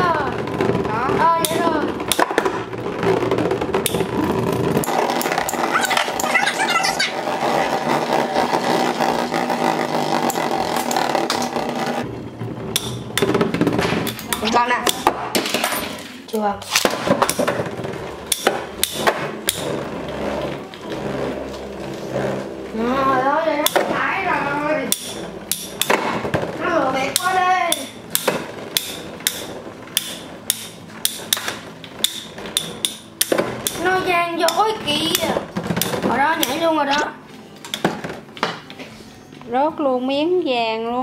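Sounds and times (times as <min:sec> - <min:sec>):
spinning tops whirring grind: 0:00.0 - 0:37.3
spinning tops knocking together: 0:00.4 - 0:07.3.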